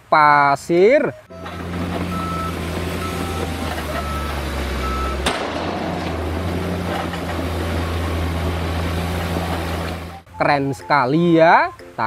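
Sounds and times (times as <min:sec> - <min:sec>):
warning beeper: 0:01.2 - 0:06.8
diesel truck engine running: 0:01.2 - 0:10.4.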